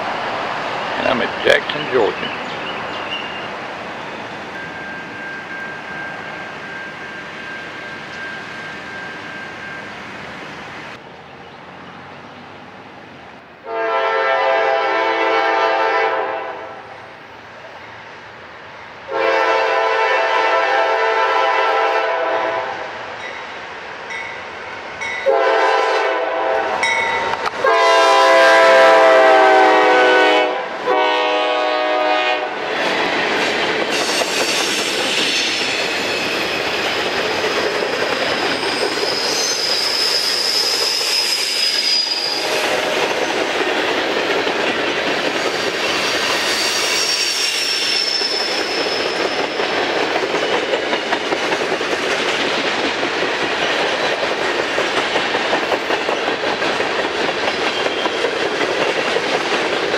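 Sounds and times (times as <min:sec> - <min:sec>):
high wheel squeals: 0:02.4 - 0:10.5, 0:33.9 - 0:43.3, 0:45.5 - 0:49.8
locomotive air horn blasts: 0:13.6 - 0:16.8, 0:19.1 - 0:22.8, 0:25.2 - 0:26.9, 0:27.6 - 0:32.6
train wheels clacking over rail joints: 0:32.7 - 0:41.2, 0:42.5 - 0:46.8, 0:48.1 - 0:59.9.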